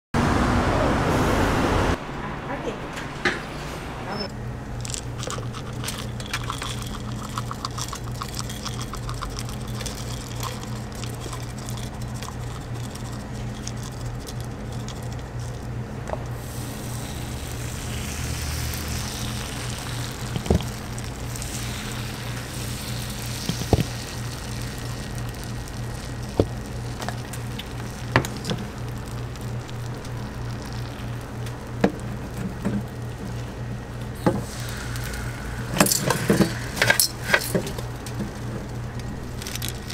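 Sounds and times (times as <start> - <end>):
low machine hum: 0.2 - 39.9
seeds pattering into metal mold: 4.8 - 33.6, 34.2 - 39.9
batter sizzling on iron: 5.0 - 39.9.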